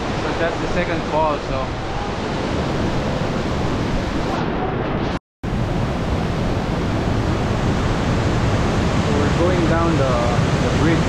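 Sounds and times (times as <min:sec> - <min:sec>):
water rushing over waterfall: 0:00.0 - 0:11.0.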